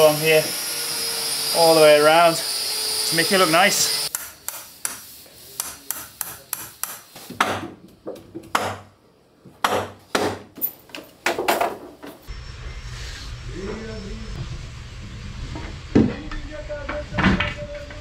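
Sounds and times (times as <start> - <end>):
hammer striking wood: 5.6 - 7.8, 8.4 - 8.9, 9.6 - 10.5.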